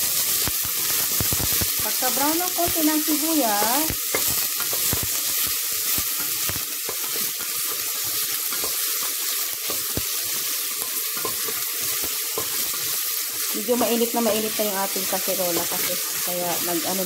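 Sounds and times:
garlic and onion sizzling in oil: 0:00.0 - 0:17.0.

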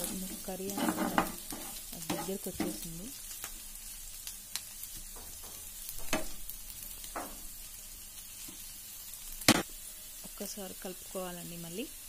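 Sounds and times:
spatula scraping a pan: 0:00.0 - 0:03.0
vegetables sizzling in a pan: 0:00.0 - 0:12.0.

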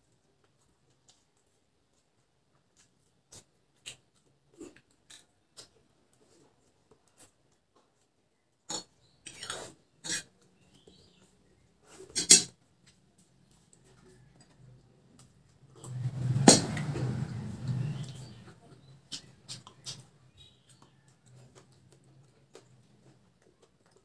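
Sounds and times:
mouth clicks and smacks: 0:16.6 - 0:24.0.

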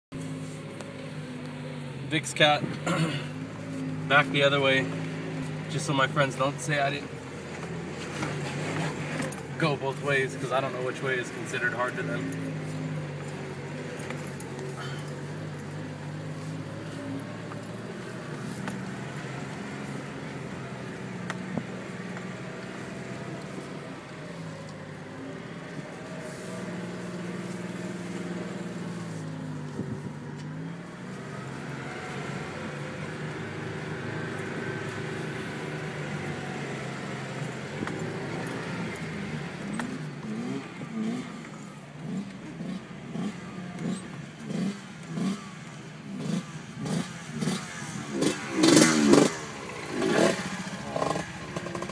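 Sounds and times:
car engine crawling off-road: 0:00.1 - 0:51.9
dirt bike engines revving: 0:01.8 - 0:51.9.

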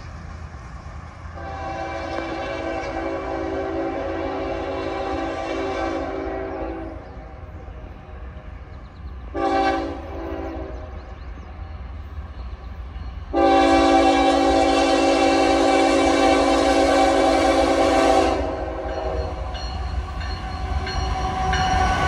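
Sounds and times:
low rumble of train: 0:00.0 - 0:22.0
locomotive air horn blasts: 0:01.4 - 0:07.0, 0:09.3 - 0:10.9, 0:13.3 - 0:19.6.

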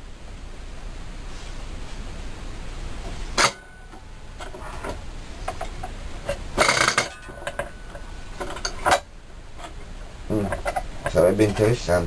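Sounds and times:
metal clattering: 0:03.4 - 0:09.8
metal parts clinking and knocking: 0:06.3 - 0:09.0.

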